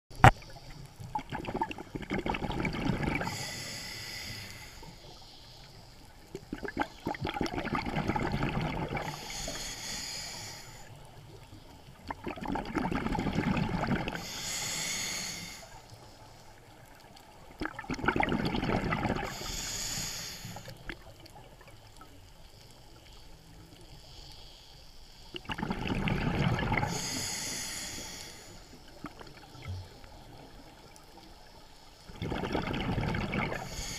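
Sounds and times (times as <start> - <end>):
exhaled bubbles rushing: 1.1 - 3.3, 6.4 - 9.2, 12.0 - 14.2, 17.5 - 19.4, 25.4 - 27.0, 32.1 - 33.7
diver breathing through regulator: 3.1 - 6.0, 9.0 - 11.0, 14.0 - 16.3, 18.9 - 20.8, 26.6 - 29.0, 33.3 - 33.9.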